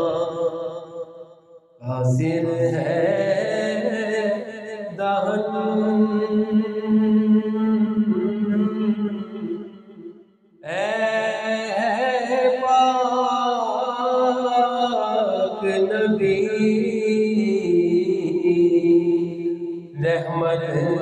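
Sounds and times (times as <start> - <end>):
man singing unaccompanied: 1.8 - 9.7, 10.6 - 19.4, 20.0 - 21.0.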